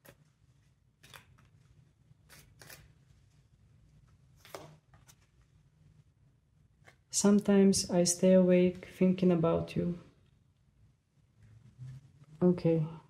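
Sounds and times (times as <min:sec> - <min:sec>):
cards shuffled by hand: 0:00.0 - 0:03.2, 0:04.3 - 0:05.5
low room hum: 0:00.0 - 0:13.0.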